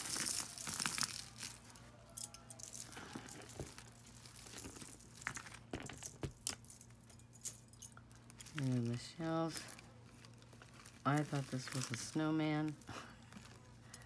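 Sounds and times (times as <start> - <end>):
beads and chains clicking: 0.0 - 9.8
bag crinkling and rustling: 0.0 - 14.0.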